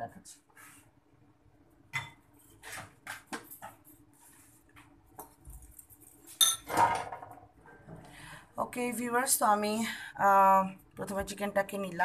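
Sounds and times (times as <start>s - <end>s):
spoon and ceramic bowls clinking: 6.4s - 7.0s.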